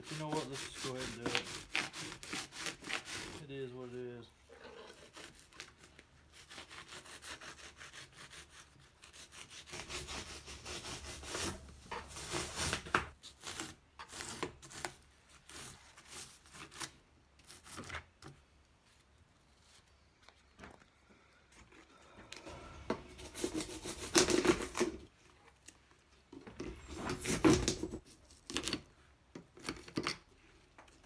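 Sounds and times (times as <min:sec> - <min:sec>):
hand saw cutting foam: 0:00.0 - 0:03.5, 0:04.9 - 0:18.0, 0:22.4 - 0:25.0.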